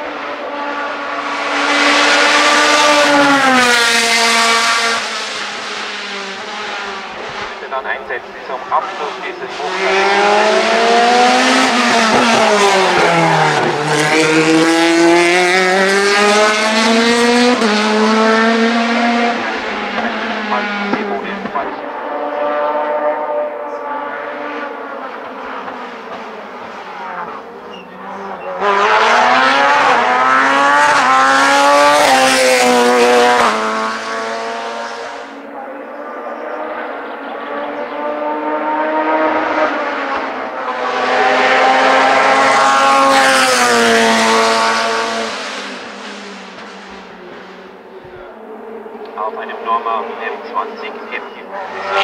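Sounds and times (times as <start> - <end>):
race car engine passing: 0.0 - 52.0.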